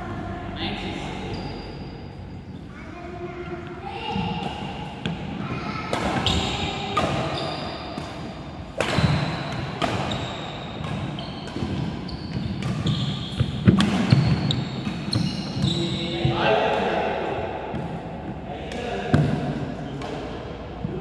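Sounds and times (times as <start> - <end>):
shoes squeaking: 6.2 - 16.3
racket striking shuttlecock: 8.0 - 15.2.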